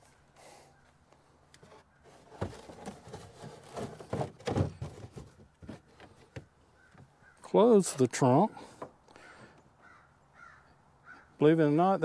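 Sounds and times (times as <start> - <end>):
objects knocking in car trunk: 3.6 - 6.5.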